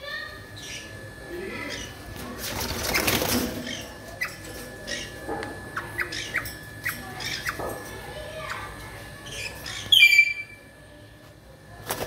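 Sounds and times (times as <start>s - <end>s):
bird wing flapping: 2.4s - 3.7s
sharp parrot chirps: 9.4s - 10.5s.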